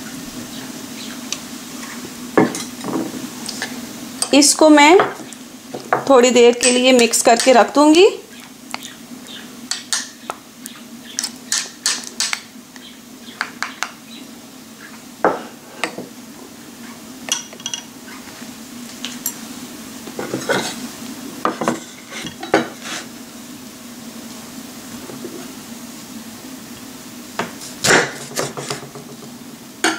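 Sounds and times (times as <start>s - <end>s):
dishes clinking and knocking: 2.4s - 3.2s, 17.3s - 17.9s, 21.4s - 22.8s.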